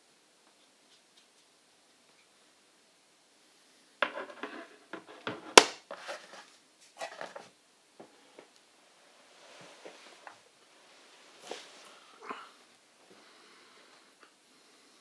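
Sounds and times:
small clicks knocks and scrapes: 4.0 - 7.5.

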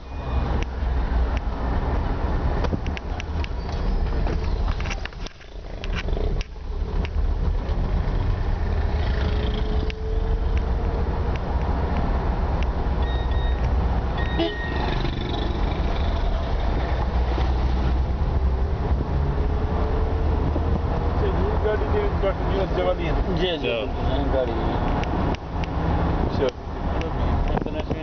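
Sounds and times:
vehicle engine and road noise: 0.0 - 28.0
short high beep: 13.0 - 13.6, 14.2 - 14.8.

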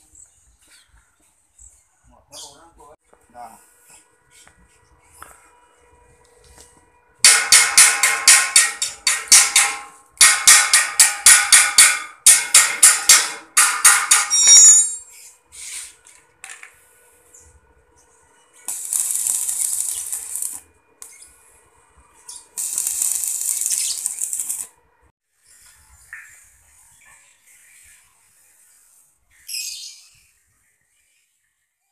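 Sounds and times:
metal-on-metal strikes: 7.2 - 15.1
welding arc crackling and hissing: 18.6 - 21.3, 22.3 - 24.8.

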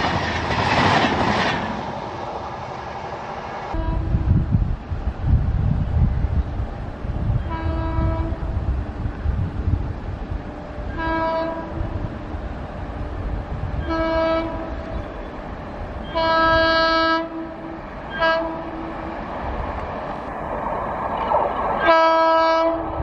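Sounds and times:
train rumble: 0.0 - 23.0
locomotive horn blasts: 3.7 - 4.4, 7.4 - 8.5, 10.9 - 12.0, 13.8 - 15.0, 16.1 - 18.9, 21.8 - 23.0.

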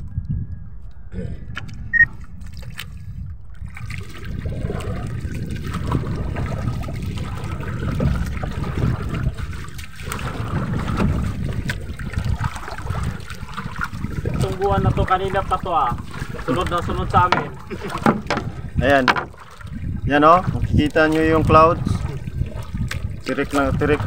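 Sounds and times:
water sloshing from paddle: 1.5 - 24.0.

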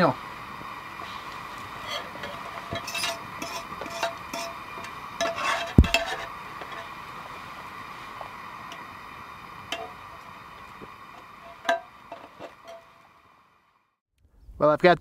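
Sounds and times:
gas flame hissing: 0.0 - 13.8
fork clinking on metal plate: 1.8 - 4.6.

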